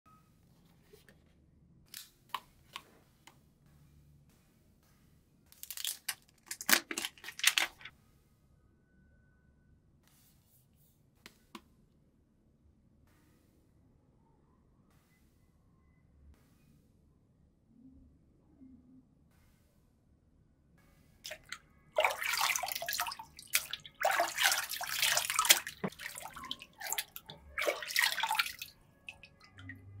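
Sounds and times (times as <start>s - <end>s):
water splashing and dripping in a tub: 5.5s - 7.9s, 21.2s - 30.0s
plastic film crinkling and tearing: 5.6s - 7.9s.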